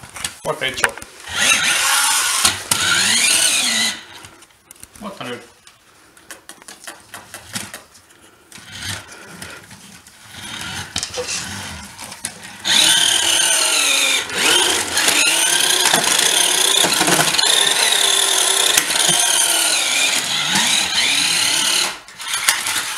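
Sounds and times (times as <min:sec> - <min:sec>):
toy car electric motor whining: 0:01.2 - 0:04.3, 0:08.6 - 0:09.5, 0:10.2 - 0:22.9.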